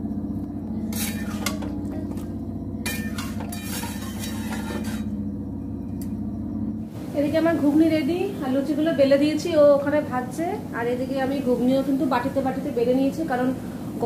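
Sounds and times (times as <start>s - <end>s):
low hum: 0.0s - 12.7s
metal spatula scraping a pan: 0.9s - 1.7s, 2.8s - 5.2s.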